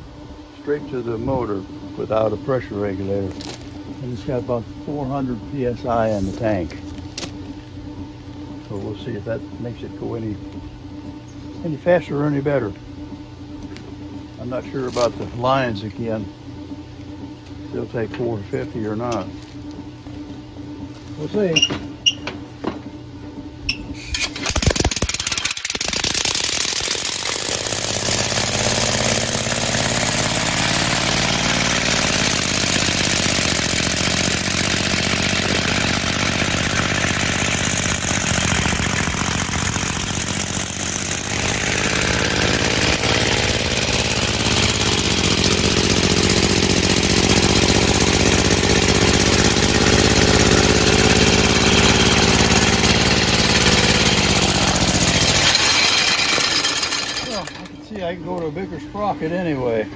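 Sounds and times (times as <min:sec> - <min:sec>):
compressed air engine running: 0:23.9 - 0:57.6.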